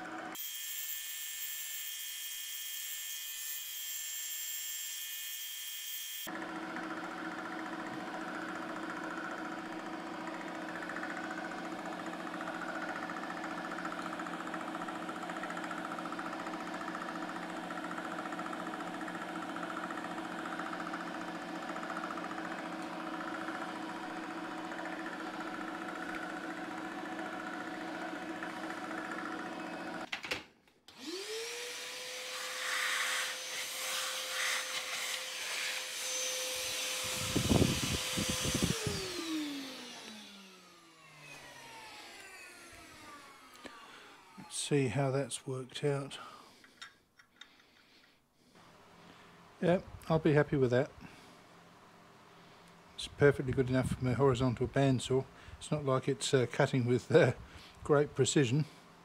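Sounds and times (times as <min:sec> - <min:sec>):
shop vacuum whine: 0:00.0 - 0:01.0, 0:06.0 - 0:30.1, 0:30.9 - 0:45.1
milling machine motor hum: 0:06.3 - 0:30.1, 0:30.9 - 0:44.5.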